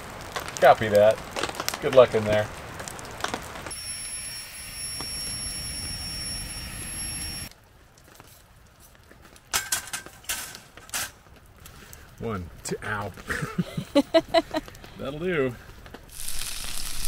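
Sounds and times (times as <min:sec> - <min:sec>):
steady hiss with high whistle: 0:03.7 - 0:07.5, 0:16.1 - 0:17.0.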